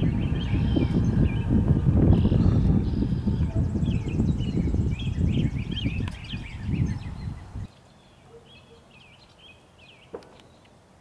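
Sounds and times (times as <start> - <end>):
wind buffeting microphone: 0.0 - 7.7
songbirds chirping: 0.0 - 11.0.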